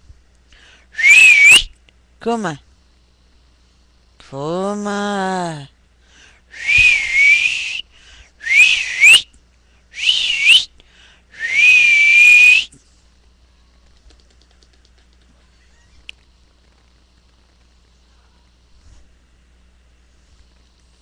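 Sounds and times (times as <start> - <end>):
person whistling: 1.0 - 1.7, 6.5 - 7.8, 8.4 - 9.3, 10.0 - 10.7, 11.4 - 12.7.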